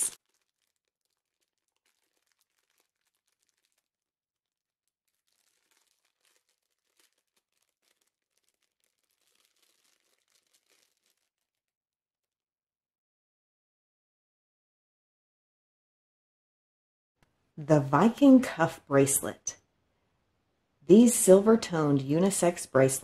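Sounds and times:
plastic bag crinkling: 0.0s - 11.7s.

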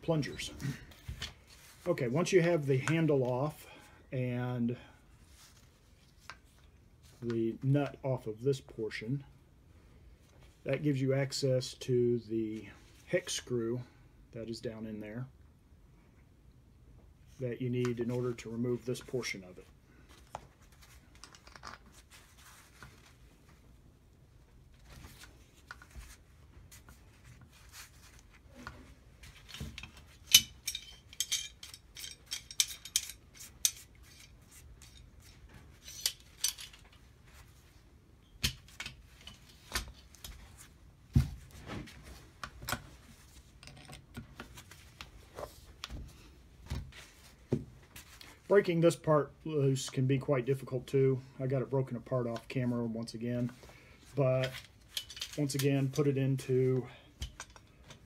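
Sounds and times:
metal tools clicking and clinking: 29.5s - 35.1s, 35.7s - 37.0s, 54.4s - 55.7s, 57.2s - 57.7s.

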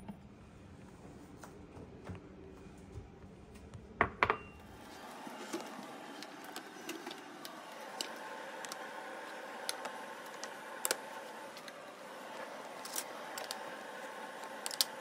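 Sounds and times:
faint steady hum: 0.0s - 15.0s
ceramic bowl knocking on countertop: 4.0s - 4.5s.

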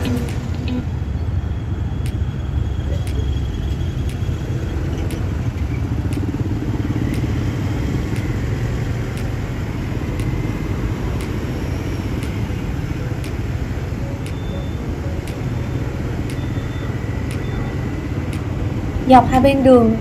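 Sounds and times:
motorbike and car traffic rumble: 0.0s - 20.0s
faint ticking: 6.0s - 7.4s, 9.1s - 16.5s.

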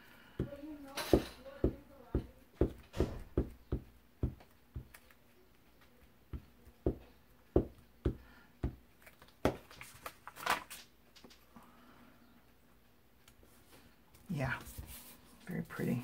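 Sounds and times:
paper rustling: 9.0s - 11.3s.

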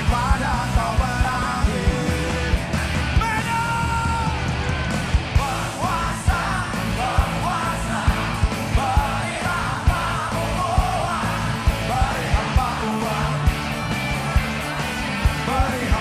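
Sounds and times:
drum kit beat: 0.0s - 16.0s
live rock band: 0.0s - 16.0s
man singing shouted phrases: 3.2s - 4.4s.

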